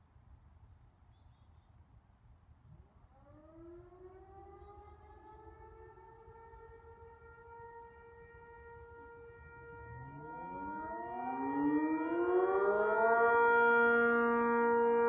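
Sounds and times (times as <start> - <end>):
faint warning siren wailing: 2.9 - 15.0.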